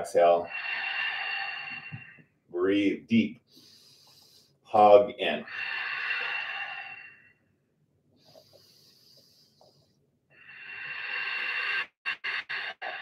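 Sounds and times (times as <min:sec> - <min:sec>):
person breathing deeply: 0:00.4 - 0:02.3, 0:03.5 - 0:04.6, 0:05.4 - 0:07.4, 0:08.2 - 0:13.0.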